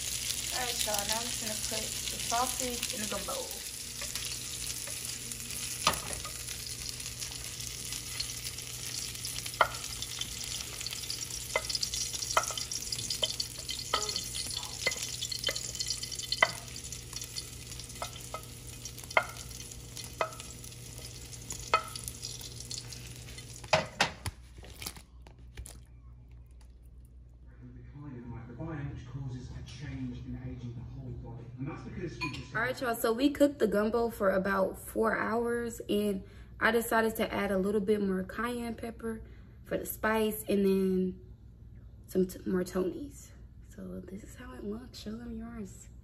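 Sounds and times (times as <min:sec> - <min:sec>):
sausage sizzling in oil: 0:00.0 - 0:24.0
spoon clicking against pan: 0:09.5 - 0:20.6.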